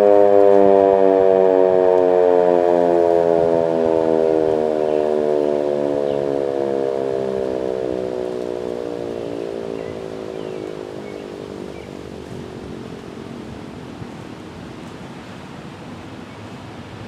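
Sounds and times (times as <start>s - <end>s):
siren winding down: 0.0s - 13.6s.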